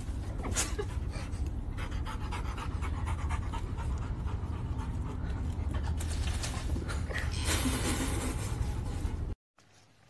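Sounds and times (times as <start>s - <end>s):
steady low rumble: 0.0s - 9.4s
dog panting: 0.6s - 6.3s.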